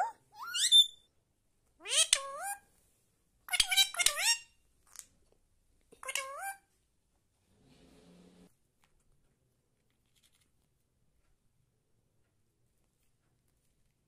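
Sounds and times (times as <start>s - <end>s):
parrot calling: 0.0s - 1.0s, 1.8s - 2.6s, 3.5s - 4.5s.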